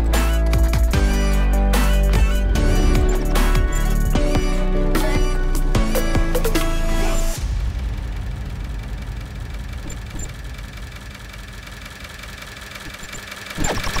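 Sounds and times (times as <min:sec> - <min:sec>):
machine mechanical rattle: 0:09.7 - 0:14.0.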